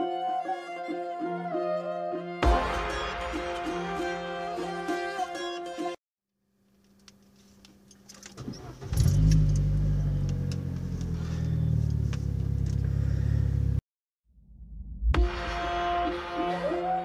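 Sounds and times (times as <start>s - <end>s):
car engine starting and idling: 8.0s - 13.8s.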